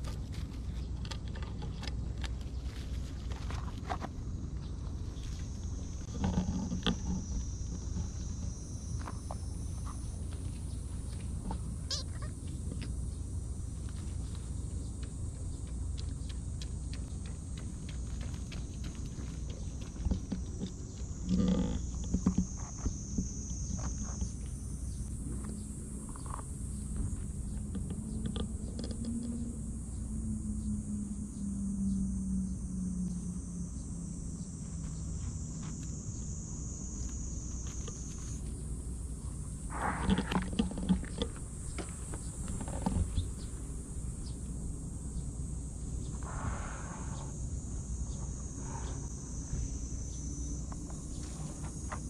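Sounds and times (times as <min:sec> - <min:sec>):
soft ticks and rustles: 0:00.0 - 0:13.0, 0:13.8 - 0:24.6
insects chirring: 0:00.0 - 0:52.0
steady low hum: 0:00.0 - 0:52.0.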